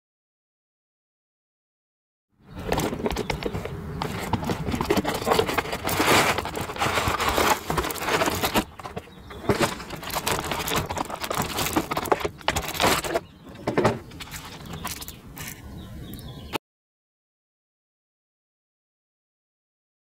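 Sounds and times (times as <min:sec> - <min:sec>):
plastic tray crackling and clicking: 0:02.6 - 0:15.6
cardboard sleeve sliding: 0:03.4 - 0:08.7.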